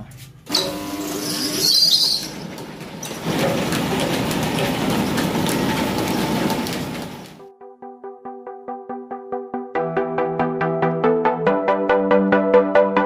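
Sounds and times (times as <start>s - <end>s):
electric motor humming: 0.5s - 2.7s
mill rattling: 0.5s - 7.4s.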